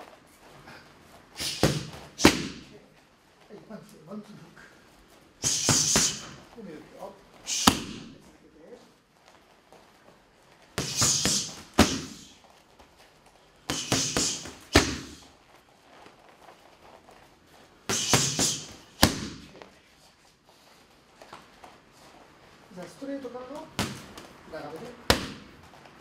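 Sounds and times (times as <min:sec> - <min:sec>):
boxing gloves hitting punch mitts: 0:01.4 - 0:02.8, 0:05.4 - 0:06.6, 0:07.5 - 0:08.3, 0:10.6 - 0:13.0, 0:13.6 - 0:15.4, 0:17.8 - 0:19.8, 0:23.5 - 0:26.0.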